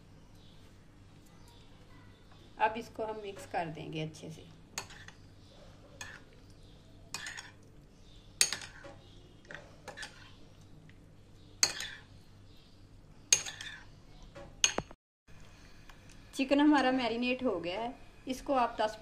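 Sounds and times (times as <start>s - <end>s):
metal spoon clinking in ceramic bowl: 7.1s - 7.6s, 8.4s - 8.8s, 11.6s - 12.0s, 13.3s - 13.8s.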